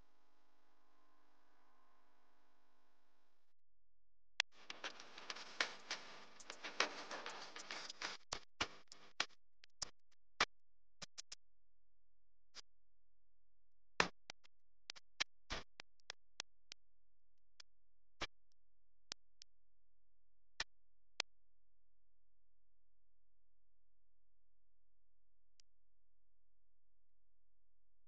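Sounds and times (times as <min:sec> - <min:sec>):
sparse electronic music with clicks: 0:04.4 - 0:10.0.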